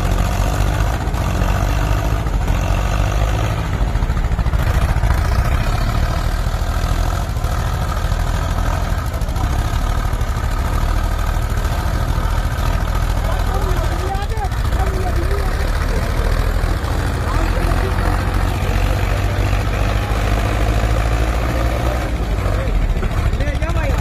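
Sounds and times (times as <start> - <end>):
tractor engines straining: 0.0 - 24.0.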